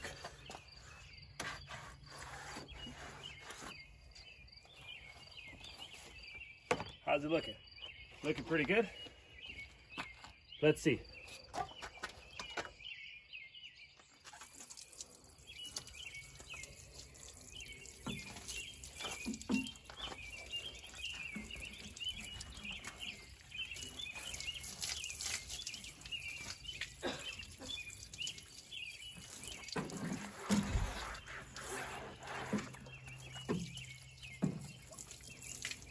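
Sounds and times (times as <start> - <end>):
small birds chirping: 0.0 - 35.9
water splashing on metal: 14.3 - 35.9.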